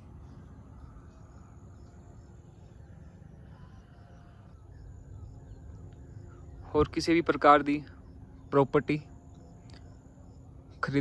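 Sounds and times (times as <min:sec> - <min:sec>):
faint high chirps: 0:00.0 - 0:07.0.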